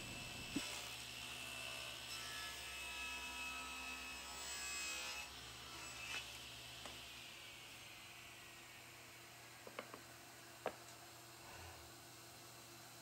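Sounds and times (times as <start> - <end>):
electrical mains hum: 0.0 - 0.8.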